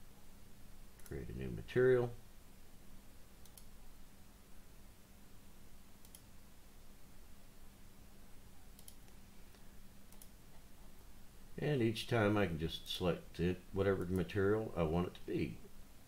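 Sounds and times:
low steady hum: 0.0 - 16.0
computer mouse clicks: 3.4 - 3.7, 6.0 - 6.3, 8.7 - 10.4.

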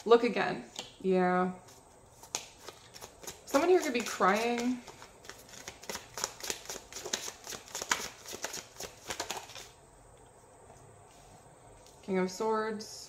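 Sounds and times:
cards being shuffled: 1.7 - 9.8.

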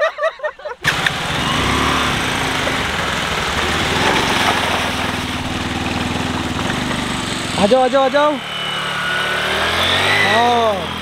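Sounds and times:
water splashing: 0.8 - 7.2
motorcycle engine running: 0.8 - 11.0.

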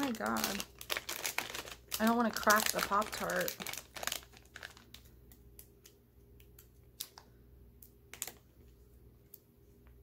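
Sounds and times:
snack wrapper crinkling: 0.0 - 7.2, 8.1 - 8.5.

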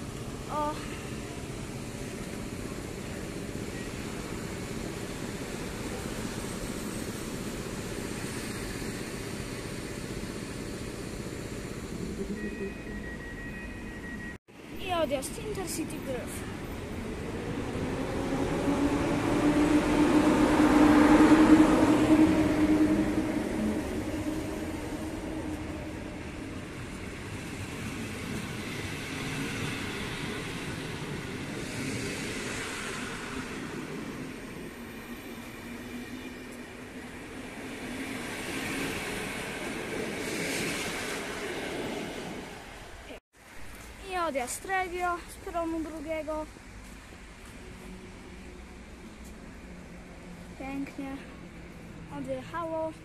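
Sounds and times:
electric locomotive hum: 0.0 - 53.0
train wheels rumbling and hissing: 0.0 - 53.0.

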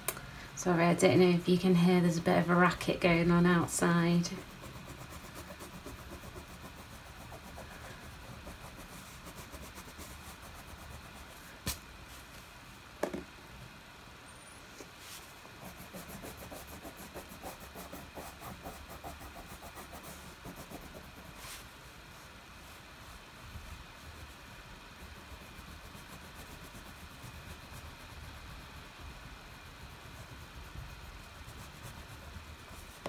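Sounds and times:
crayon scratching on paper: 2.4 - 11.4, 15.6 - 21.4, 24.0 - 33.0.

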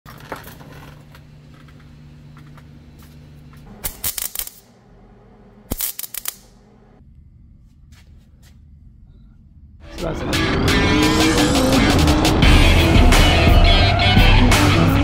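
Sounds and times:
steady low hum: 0.2 - 9.9
arc welder crackling: 0.4 - 5.0, 5.6 - 6.6.

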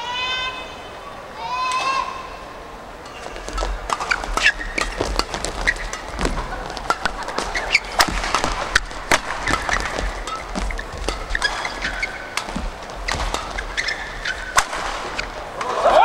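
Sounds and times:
sneaker squeaks on court floor: 3.0 - 15.5
rackets hitting shuttlecock: 3.0 - 16.0.

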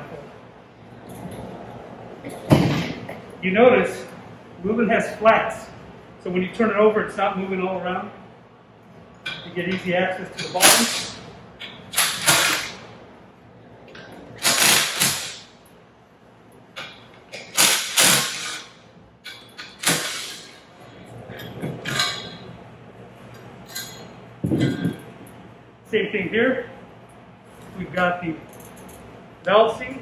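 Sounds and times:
impact wrench bursts: 10.4 - 12.9, 14.3 - 15.6, 16.8 - 20.7.

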